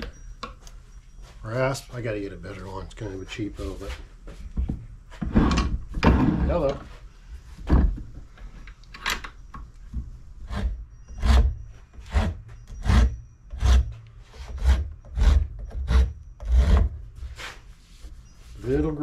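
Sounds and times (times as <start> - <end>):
hand rasp scraping wood: 10.4 - 17.6.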